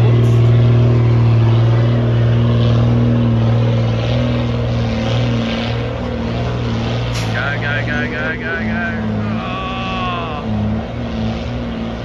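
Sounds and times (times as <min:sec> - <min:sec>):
truck engine running under load: 0:00.0 - 0:12.0.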